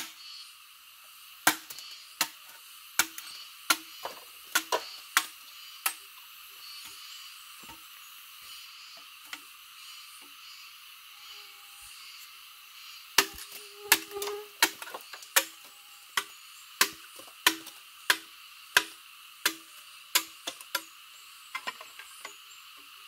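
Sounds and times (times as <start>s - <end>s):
steady high hiss: 0.0s - 23.0s
machete chopping bamboo: 1.4s - 6.0s, 13.2s - 15.6s, 16.2s - 20.9s.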